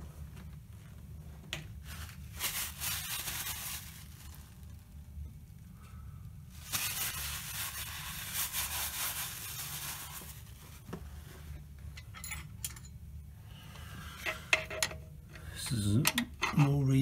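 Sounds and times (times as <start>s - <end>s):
rubbing and scraping handling noise: 0.0s - 5.0s, 6.5s - 12.8s
low steady hum: 0.0s - 17.0s.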